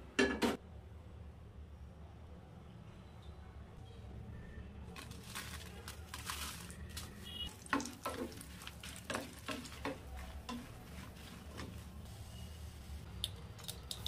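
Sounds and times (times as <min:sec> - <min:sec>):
chillies sizzling in hot oil: 0:05.1 - 0:13.1
spatula scraping a pan: 0:07.7 - 0:12.5.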